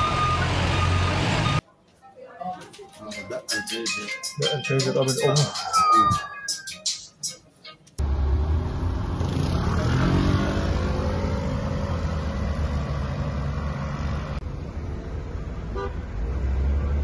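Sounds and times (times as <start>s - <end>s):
vehicle engine accelerating: 0.0s - 1.6s, 8.0s - 17.0s
low traffic rumble: 8.0s - 17.0s.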